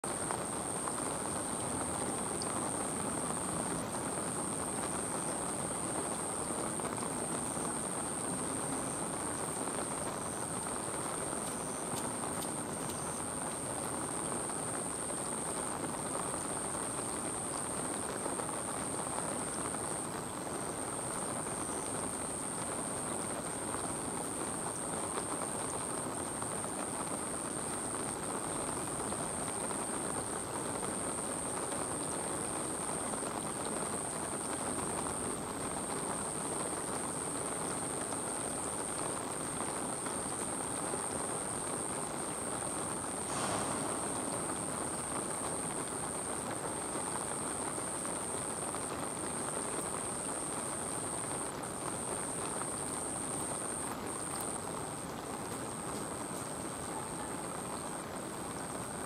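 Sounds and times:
thin high whine: 0:42.8 - 0:47.2.

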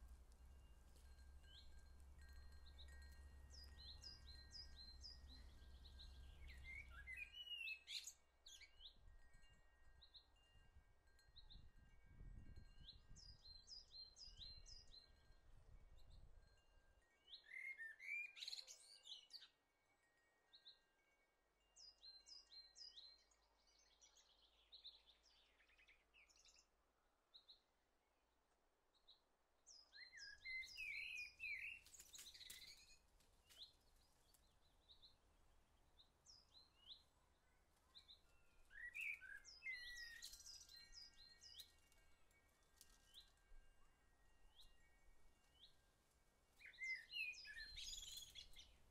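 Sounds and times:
small birds chirping: 0:00.0 - 0:10.2, 0:29.0 - 0:43.6, 0:46.6 - 0:48.9.

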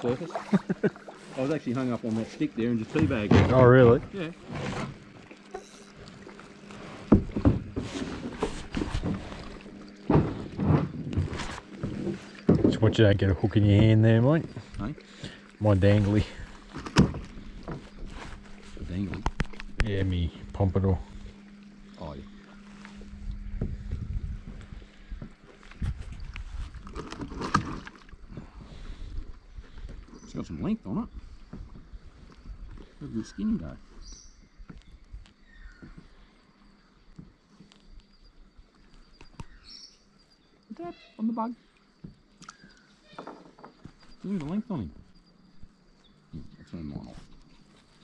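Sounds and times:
paddles knocking kayak hulls: 0:00.0 - 0:34.0
low hum: 0:00.0 - 0:43.1
fish and gear knocking in kayak: 0:06.4 - 0:15.4, 0:16.6 - 0:20.6.

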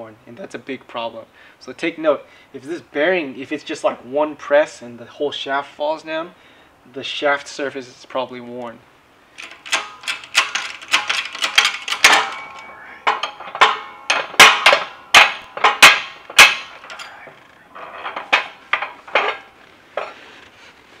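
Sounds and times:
loud sharp metal knocks: 0:09.4 - 0:20.1
hydraulic press clicks and clanks: 0:09.4 - 0:20.2.

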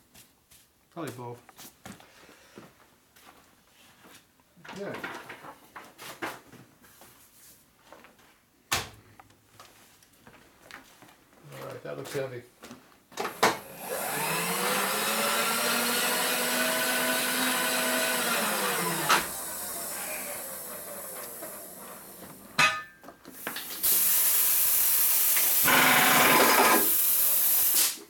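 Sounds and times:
machine tool motor spinning: 0:13.6 - 0:22.5, 0:23.6 - 0:27.8
loud steady hiss: 0:23.4 - 0:28.0.

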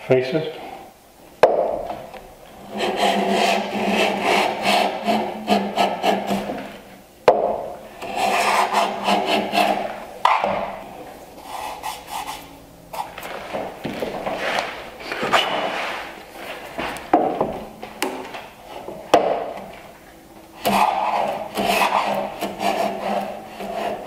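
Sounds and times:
plane shaving wood: 0:02.5 - 0:06.8, 0:08.0 - 0:10.8, 0:20.6 - 0:24.0.

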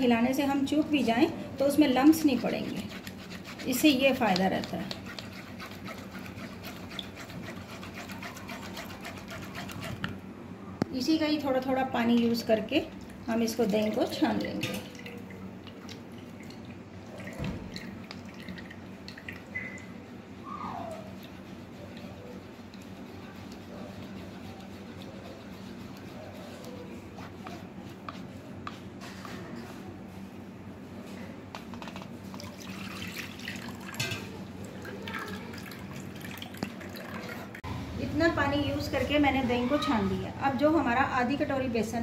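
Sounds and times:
spatula scraping a sieve: 0:01.7 - 0:10.1, 0:21.1 - 0:29.9
spoon scraping a sieve: 0:02.1 - 0:10.1.

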